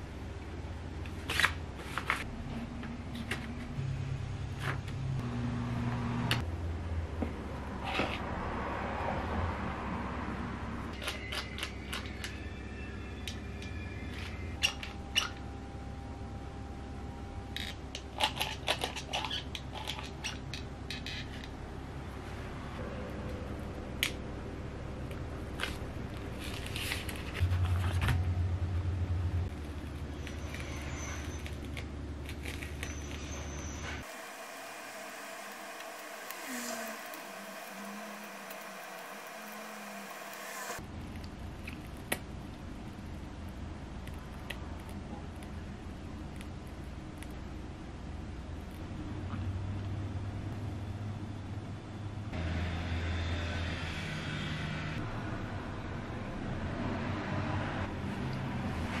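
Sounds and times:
low steady hum: 12.8s - 52.4s.

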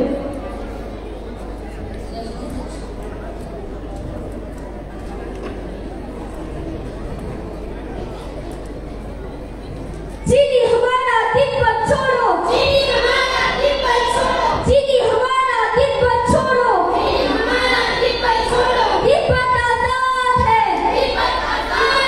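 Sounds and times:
girl singing through pa: 10.3s - 22.0s.

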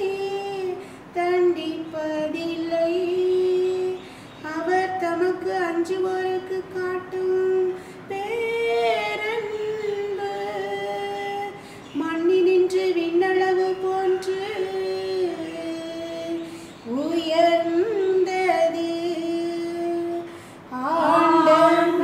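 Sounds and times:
woman singing a hymn: 0.0s - 22.0s.

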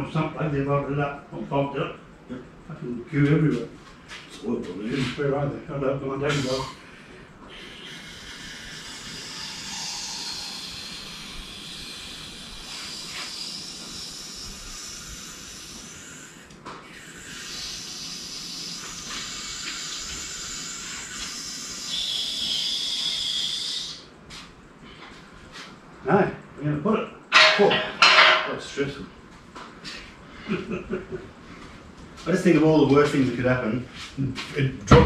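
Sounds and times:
hydraulic crane valve hissing: 6.2s - 6.9s, 7.5s - 24.1s.

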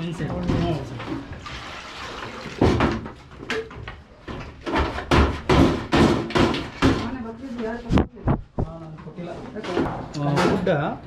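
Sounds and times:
knocks and rustles: 2.4s - 8.8s.

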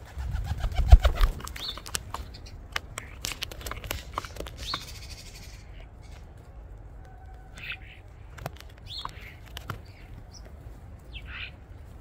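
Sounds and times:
bird feet tapping on phone: 7.4s - 10.6s.

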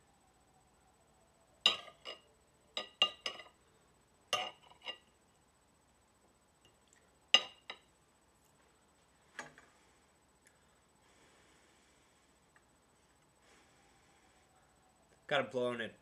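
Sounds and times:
fork clinking against plate: 4.4s - 5.0s.

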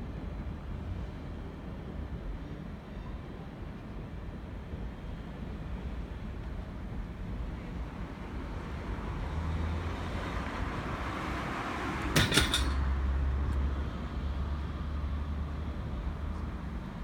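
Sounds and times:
train rumbling inside carriage: 0.0s - 17.0s
sharp clacks of train wheels: 12.0s - 12.9s.

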